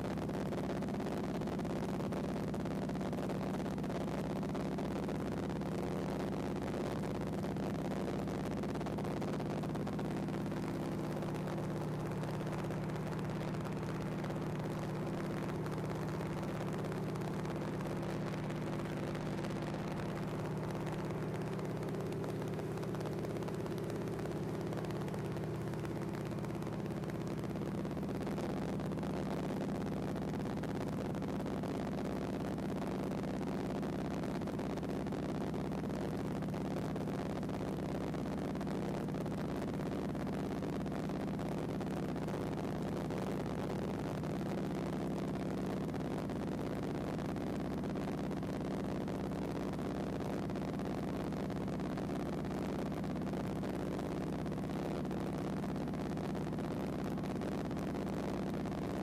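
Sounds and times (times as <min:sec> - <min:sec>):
plane engine droning: 0:10.3 - 0:28.5.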